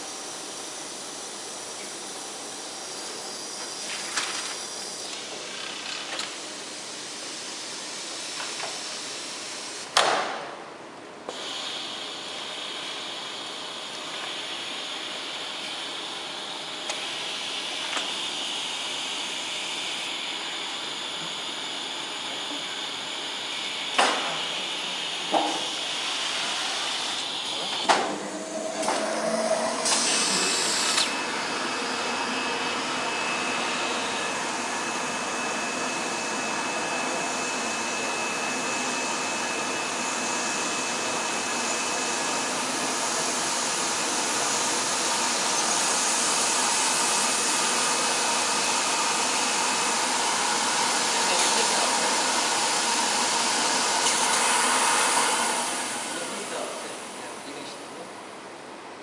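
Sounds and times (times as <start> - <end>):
machine whirring rush: 25.7 - 34.3
faint high whine: 27.2 - 32.0.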